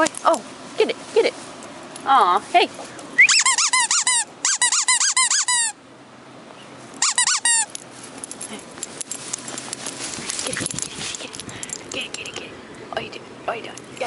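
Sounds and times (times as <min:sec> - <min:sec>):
rubber squeaky toy squeaking: 0:03.2 - 0:05.8, 0:07.0 - 0:07.7.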